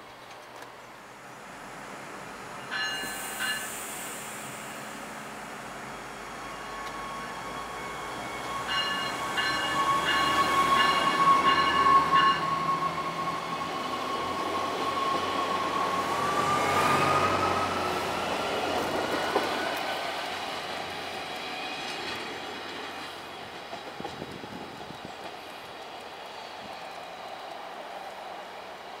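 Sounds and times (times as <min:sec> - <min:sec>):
rail car motor whine: 0:00.1 - 0:21.5.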